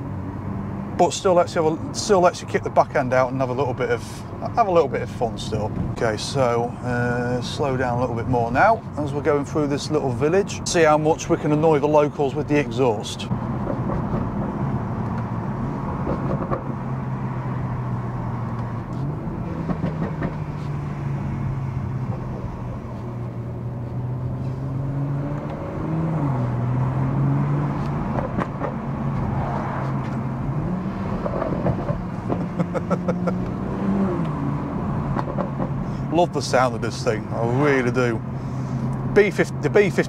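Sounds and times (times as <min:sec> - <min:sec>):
car engine from inside cabin: 0:12.6 - 0:40.0.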